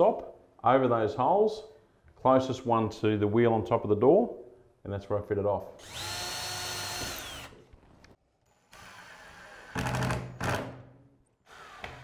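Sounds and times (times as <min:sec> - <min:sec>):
cordless driver whining: 0:05.8 - 0:07.6.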